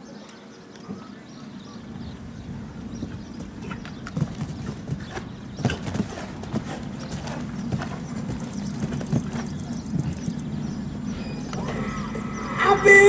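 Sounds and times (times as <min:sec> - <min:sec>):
horse hoofbeats on grass: 0:02.9 - 0:10.9.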